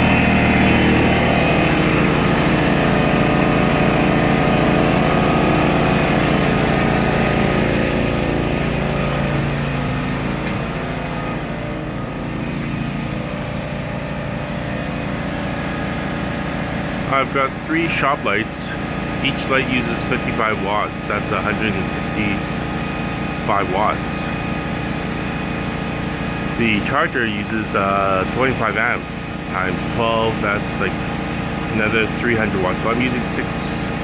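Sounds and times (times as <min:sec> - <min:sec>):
generator engine running: 0:00.0 - 0:34.0.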